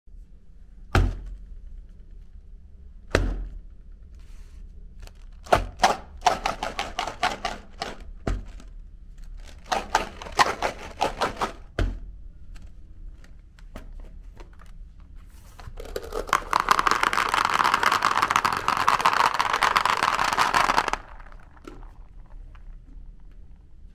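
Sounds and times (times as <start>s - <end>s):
candy balls rattling in tube: 5.1s - 8.6s, 9.2s - 11.7s, 15.6s - 23.3s
plastic tubes knocking on table: 5.4s - 8.7s, 9.4s - 12.1s, 15.7s - 22.9s.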